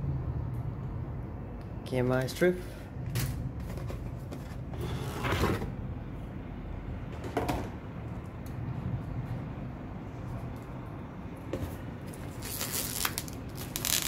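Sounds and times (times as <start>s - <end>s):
packaging scraping and rustling: 12.2s - 14.0s.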